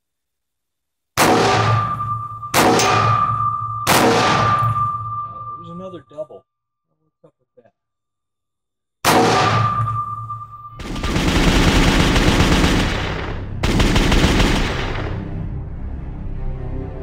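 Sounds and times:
music: 10.1s - 17.0s
automatic gunfire bursts: 10.8s - 15.2s.

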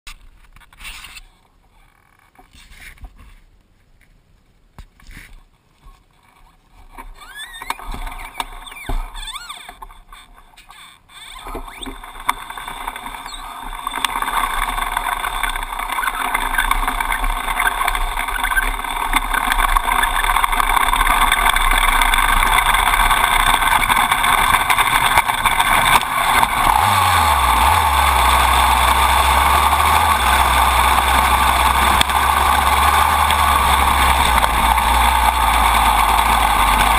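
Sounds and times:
dirt bike engine and chain: 5.0s - 36.9s
low hum: 11.5s - 36.9s.

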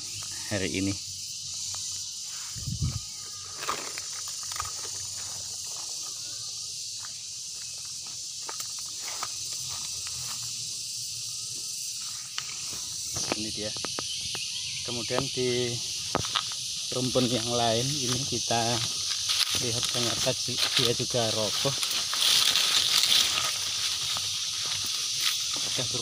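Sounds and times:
high-pitched insect chorus: 0.0s - 26.0s
rustling: 18.8s - 25.9s
footsteps: 18.8s - 26.0s.

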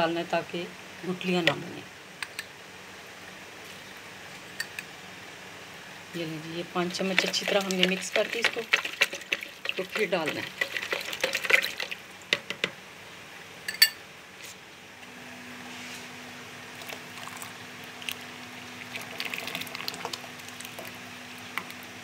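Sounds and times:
liquid pouring and splashing: 7.1s - 12.2s, 16.7s - 21.8s.

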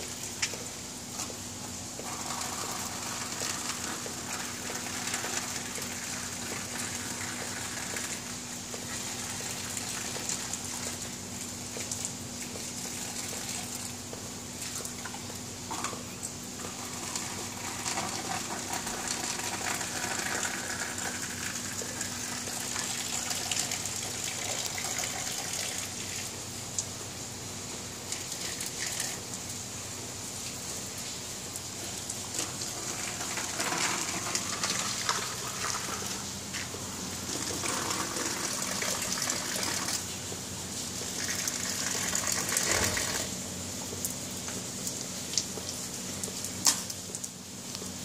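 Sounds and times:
gushing water: 0.0s - 48.0s
heavy rain: 2.0s - 11.0s, 16.5s - 26.4s, 30.4s - 43.4s.

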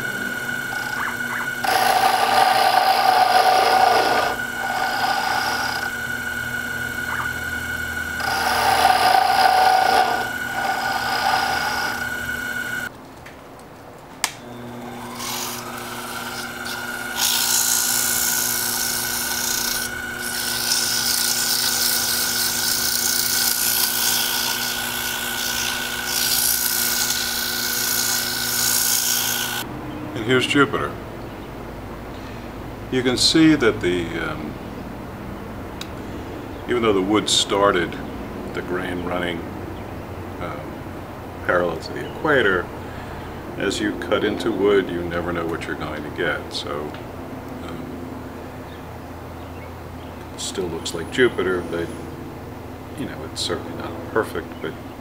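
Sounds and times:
cutter scraping wood: 0.0s - 12.9s, 14.6s - 29.7s
lathe motor whining: 0.0s - 12.9s, 14.4s - 29.7s
hand sanding rasping hiss: 0.9s - 5.9s.

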